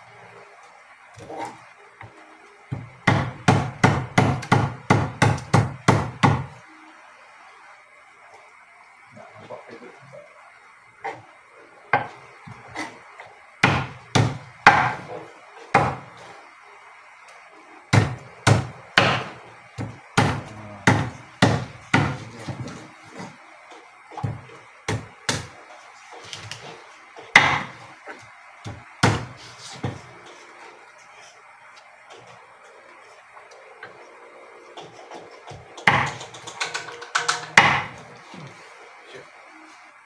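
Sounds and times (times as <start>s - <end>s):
knife chopping on wooden board: 2.7s - 6.5s, 13.6s - 16.1s, 17.9s - 23.4s, 27.3s - 27.8s, 28.7s - 30.0s, 34.8s - 36.4s, 37.2s - 38.0s.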